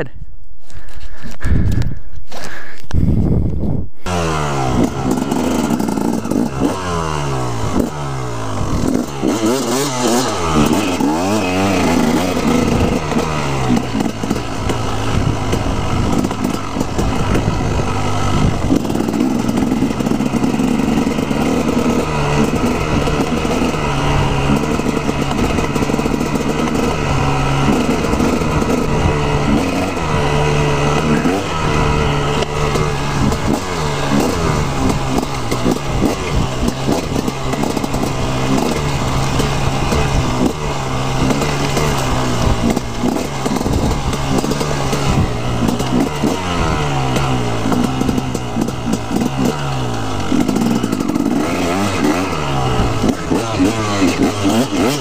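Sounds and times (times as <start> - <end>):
dirt bike engine revving: 4.0 - 55.0.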